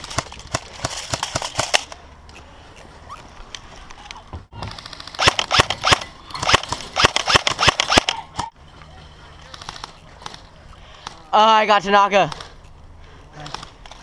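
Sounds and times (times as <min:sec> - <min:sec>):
airsoft rifle firing: 0:04.6 - 0:08.5.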